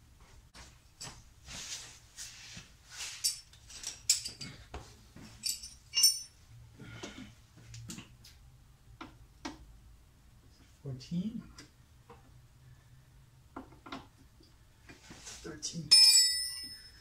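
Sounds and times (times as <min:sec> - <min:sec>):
metal hand tools clinking: 0:03.2 - 0:04.6, 0:05.4 - 0:06.4, 0:15.9 - 0:17.0.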